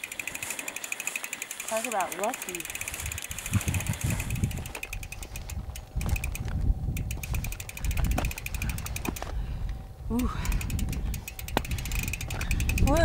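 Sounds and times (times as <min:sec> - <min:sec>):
fast high chirring: 0:00.0 - 0:09.2, 0:10.2 - 0:13.0
wind rumbling on microphone: 0:02.7 - 0:13.0.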